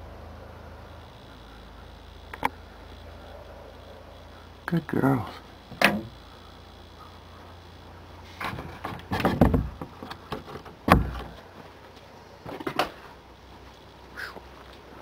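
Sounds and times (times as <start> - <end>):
wooden door knocks and scrapes: 8.4 - 9.9, 10.9 - 11.3
heavy wooden thump: 8.4 - 11.4.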